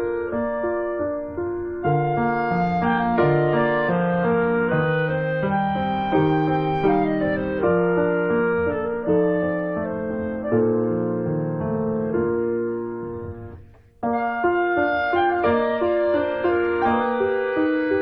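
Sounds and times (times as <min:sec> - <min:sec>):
slow piano chords: 0:00.0 - 0:18.0.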